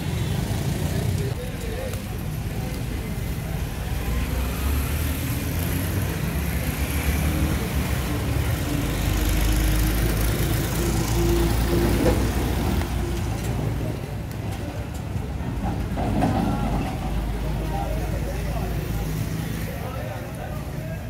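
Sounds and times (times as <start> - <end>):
street traffic: 0.0 - 21.0.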